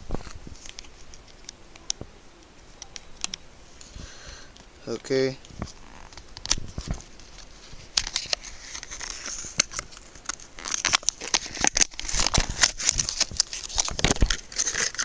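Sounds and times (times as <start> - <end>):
packaging tearing and crinkling: 5.1 - 15.0.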